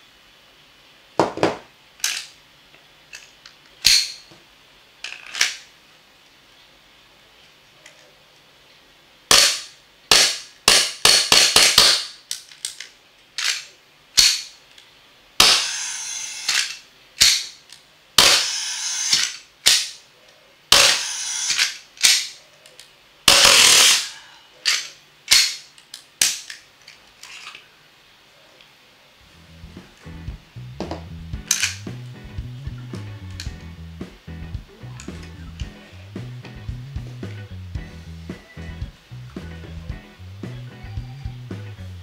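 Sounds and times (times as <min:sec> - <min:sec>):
airsoft pistol shots: 0:09.3 - 0:12.2, 0:15.4 - 0:15.8, 0:18.2 - 0:20.0, 0:20.7 - 0:22.3, 0:23.3 - 0:24.1.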